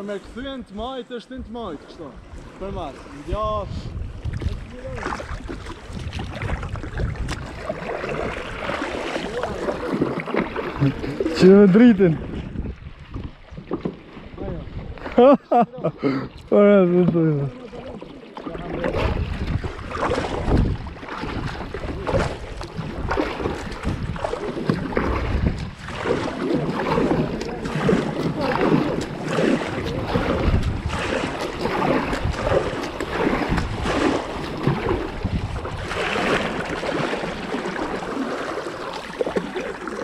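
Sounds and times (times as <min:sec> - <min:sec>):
paddle splashing in water: 0:00.0 - 0:40.0
wind rumbling on microphone: 0:01.3 - 0:15.8, 0:18.5 - 0:40.0.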